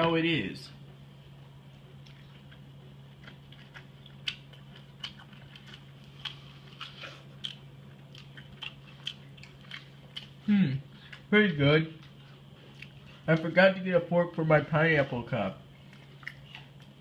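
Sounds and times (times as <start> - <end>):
person chewing crunchy food: 1.6 - 11.3, 11.9 - 13.6, 15.6 - 17.0.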